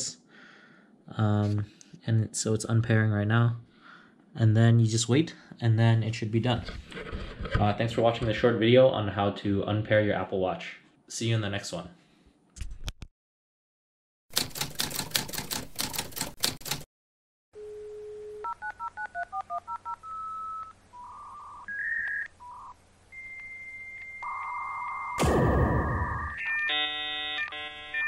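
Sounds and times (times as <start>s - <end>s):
touch-tone dialing beeps: 18.4s - 22.8s.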